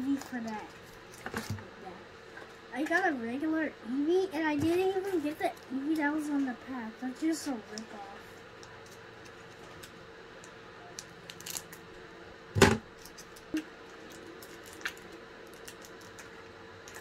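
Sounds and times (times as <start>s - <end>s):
foil wrapper crinkling: 11.0s - 11.8s, 13.0s - 17.0s.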